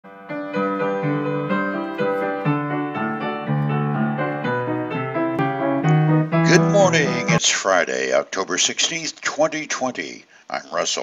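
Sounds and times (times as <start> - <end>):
piano melody: 0.0 - 7.4.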